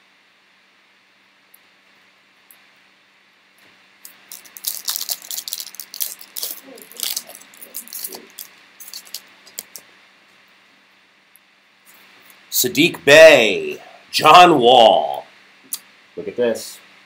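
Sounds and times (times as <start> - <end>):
foil wrapper crinkling and tearing: 4.0 - 9.8.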